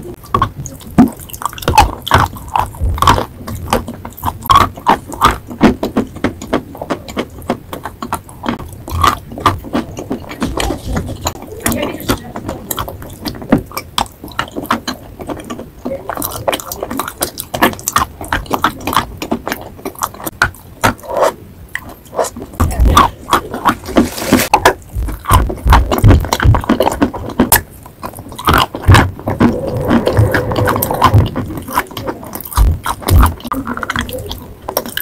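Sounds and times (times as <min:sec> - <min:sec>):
chalk crunching being chewed: 0:00.2 - 0:11.4, 0:12.7 - 0:35.0
dull low thumps: 0:28.4 - 0:33.5.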